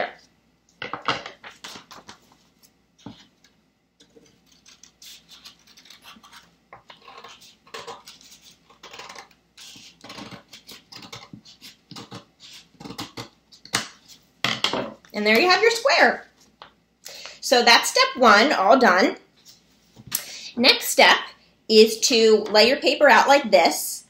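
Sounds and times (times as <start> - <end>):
scissors snipping paper: 4.2 - 13.3.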